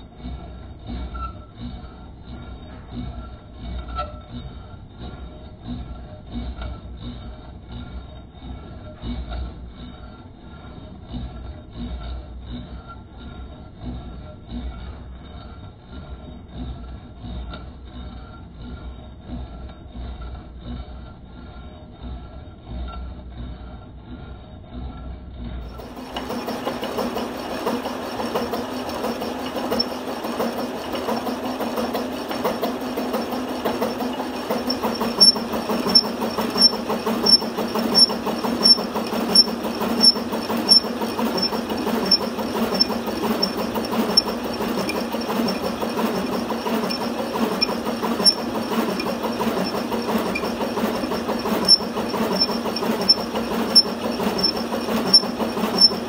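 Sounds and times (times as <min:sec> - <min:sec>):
lathe humming with cutting noise: 0:25.7 - 0:56.0.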